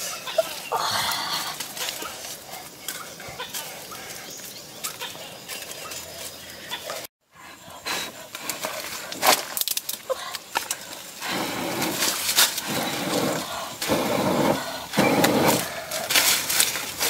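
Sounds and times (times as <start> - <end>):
sticks snapping in fire: 9.2 - 10.8
person blowing on embers: 10.9 - 17.0.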